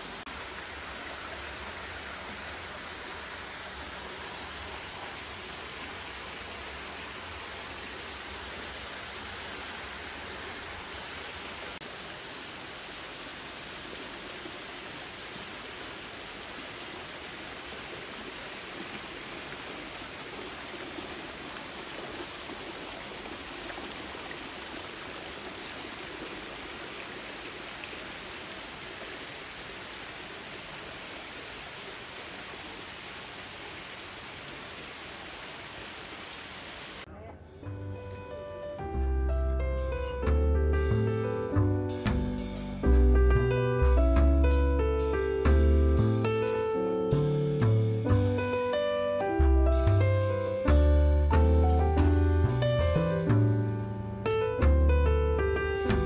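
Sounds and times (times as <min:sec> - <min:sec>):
water splashing from small waterfall: 0:00.0 - 0:37.1.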